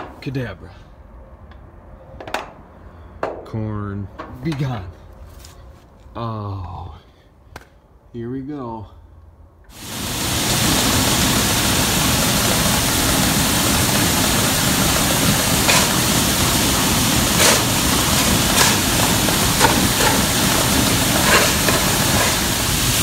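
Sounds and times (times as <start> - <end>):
low mechanical rumble: 9.1 - 23.0
corn rushing into auger: 9.8 - 23.0.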